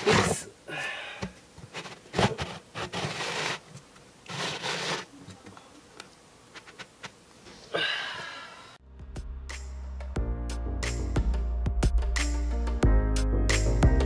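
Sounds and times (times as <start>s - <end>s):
plastic lid rasping while twisted: 1.6s - 5.1s.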